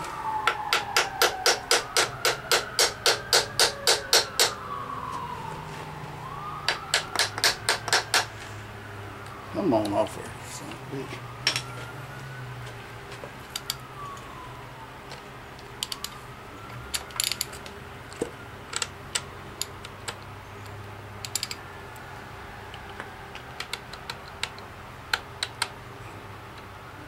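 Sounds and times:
distant siren wailing: 0.0 - 27.0
metal clicks and clinks: 11.5 - 11.7, 16.9 - 17.8, 18.7 - 21.6.

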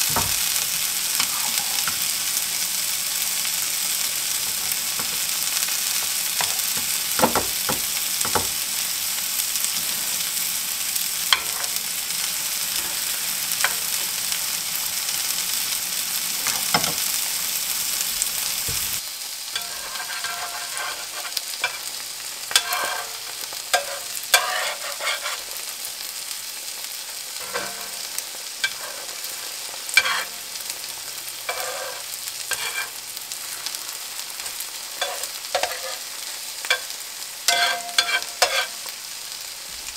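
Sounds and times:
egg mixture sizzling in skillet: 0.0 - 39.9
metal fork scraping skillet: 1.2 - 2.1, 19.6 - 21.9, 22.5 - 25.5, 27.4 - 30.4, 31.4 - 33.0, 35.0 - 36.1, 37.5 - 38.8.

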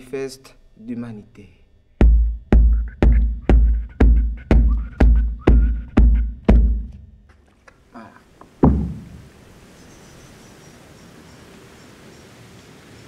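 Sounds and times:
bamboo tube thumping floor: 2.0 - 7.4, 8.6 - 9.3
light knocks: 8.6 - 9.2.

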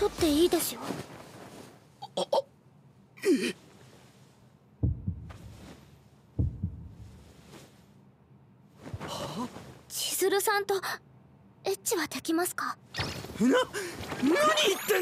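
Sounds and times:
cartoon heartbeat thuds: 4.8 - 5.6, 6.4 - 7.2.

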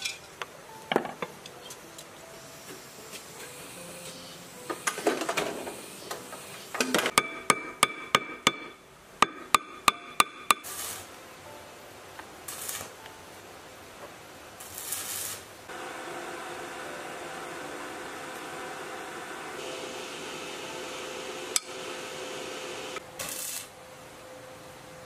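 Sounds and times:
hammer striking metal housing: 7.1 - 10.7.

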